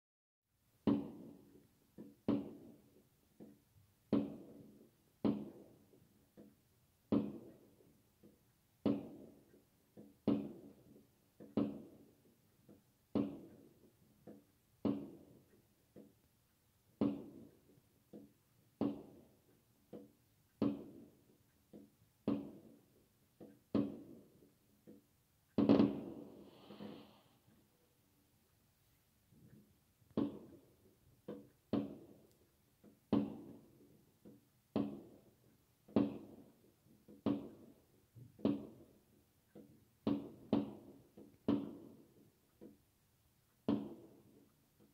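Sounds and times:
fireworks bursting: 25.6s - 27.5s.

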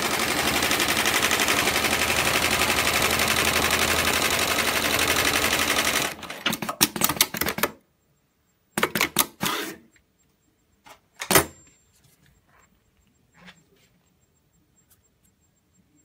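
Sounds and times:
sewing machine stitching: 0.0s - 7.6s.

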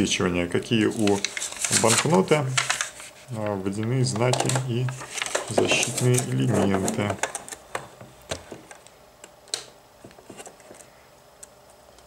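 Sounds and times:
banknote paper crinkling: 0.8s - 3.4s, 4.1s - 7.5s.

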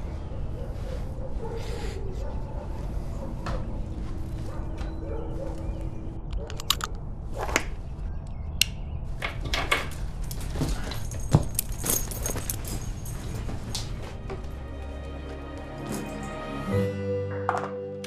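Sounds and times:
leash clicks and knocks: 9.2s - 14.6s
metal ring jingling: 10.2s - 13.8s.

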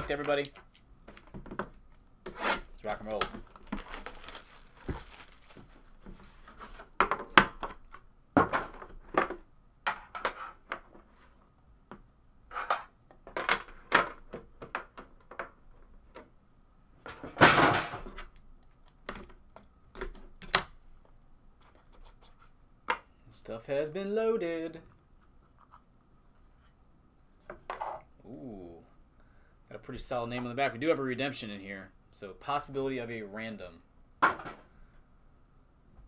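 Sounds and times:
cardboard and plastic wrap rustling: 2.6s - 7.0s.

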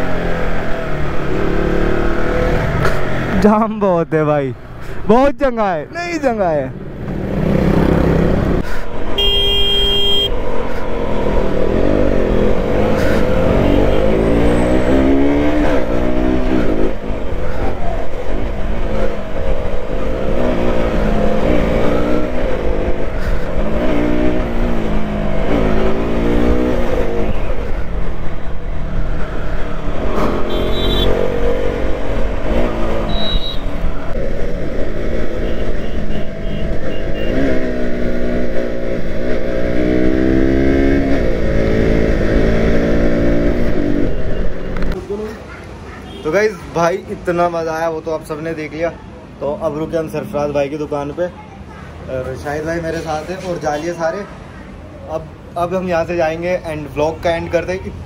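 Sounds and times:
motorcycle engine revving: 7.0s - 8.6s, 18.4s - 45.0s.

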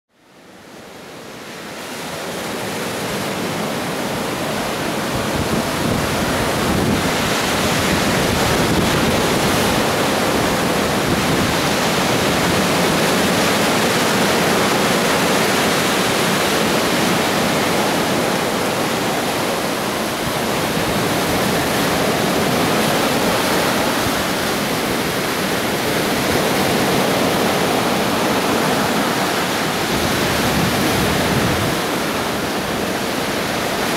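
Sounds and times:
waves breaking on sand: 0.3s - 33.9s.

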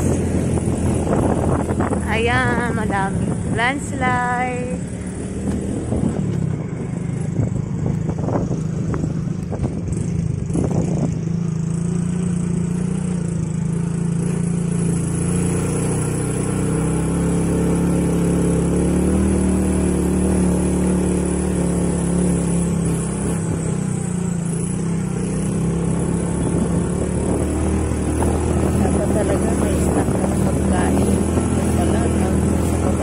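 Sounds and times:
scooter engine running: 0.0s - 33.0s.

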